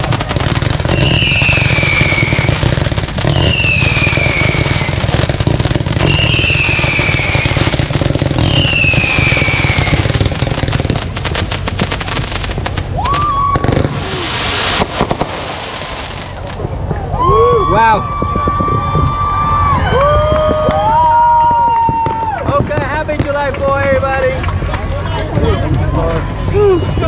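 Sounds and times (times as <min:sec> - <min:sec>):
fireworks shots crackling: 0:00.0 - 0:17.5, 0:18.1 - 0:27.0
hissing firework burst: 0:00.0 - 0:17.5
fireworks rising whistle: 0:00.0 - 0:23.4, 0:25.4 - 0:27.0
fireworks falling whistles: 0:00.0 - 0:24.0, 0:25.4 - 0:27.0.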